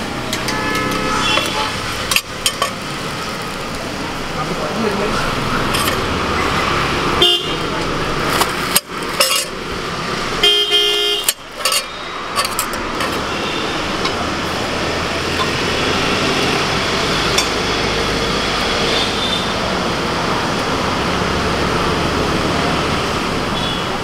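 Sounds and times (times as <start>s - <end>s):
vehicle horn honking: 0.4s - 1.8s, 7.2s - 7.7s, 10.4s - 12.1s, 13.1s - 14.0s, 23.6s - 24.0s.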